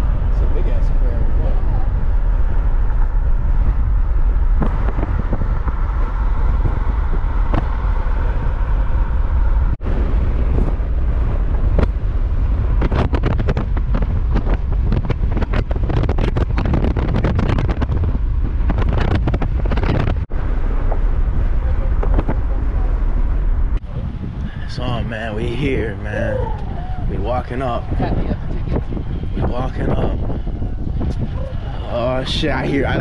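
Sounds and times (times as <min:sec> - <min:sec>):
car road and engine rumble: 0:00.0 - 0:33.0
wind buffeting microphone: 0:00.0 - 0:33.0
crackles: 0:10.5 - 0:27.1.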